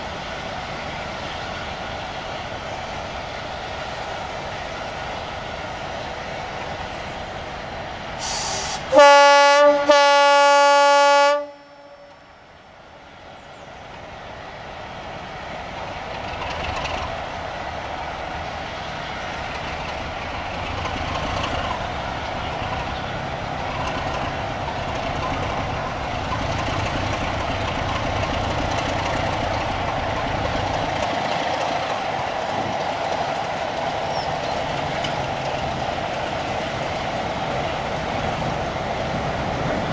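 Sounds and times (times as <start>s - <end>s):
diesel locomotive engine: 0.0s - 39.9s
train running on rails: 0.0s - 39.9s
locomotive horn blasts: 8.3s - 12.2s.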